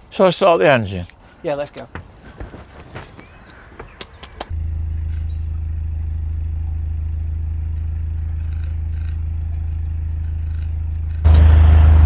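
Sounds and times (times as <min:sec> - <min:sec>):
boat engine running: 0:04.5 - 0:12.0.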